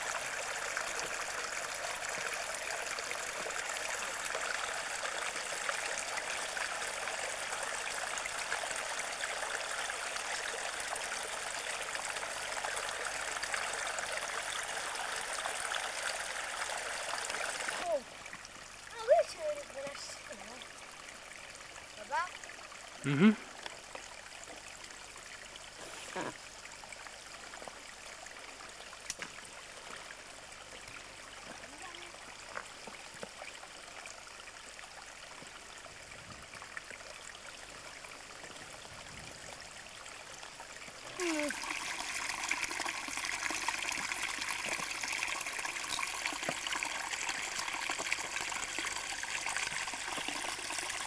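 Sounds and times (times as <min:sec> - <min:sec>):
stream running over stones: 0:00.0 - 0:51.0.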